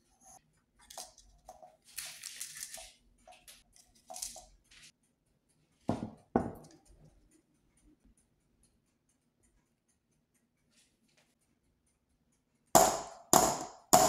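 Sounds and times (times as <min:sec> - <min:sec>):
paper liners crinkling: 0:01.8 - 0:04.9.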